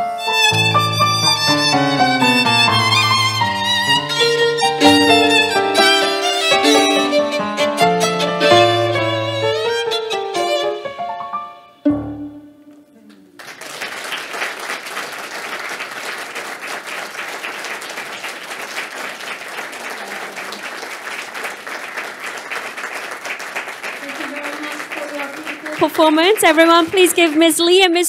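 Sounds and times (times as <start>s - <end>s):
violin and electric piano: 0.0s - 12.8s
audience applause: 0.4s - 7.2s, 13.0s - 28.0s.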